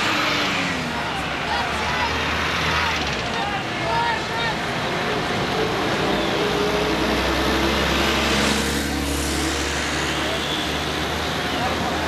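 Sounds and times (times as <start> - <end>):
buses and traffic driving past: 0.0 - 12.0
engine hum: 0.0 - 12.0.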